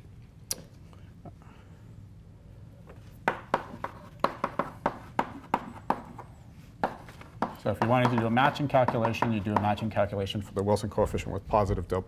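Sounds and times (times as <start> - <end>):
chalk tapping on a blackboard: 3.2 - 9.9.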